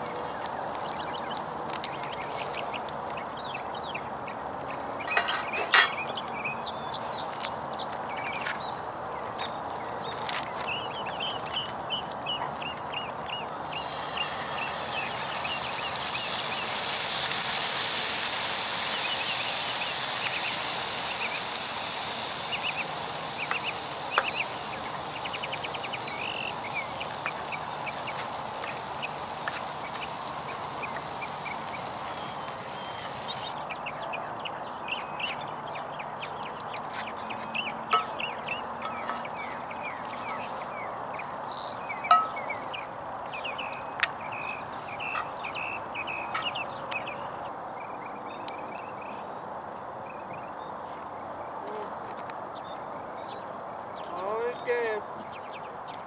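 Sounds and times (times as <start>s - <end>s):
food sizzling in a skillet: 5.0s - 8.8s, 9.6s - 33.6s, 37.6s - 40.5s, 41.3s - 42.9s.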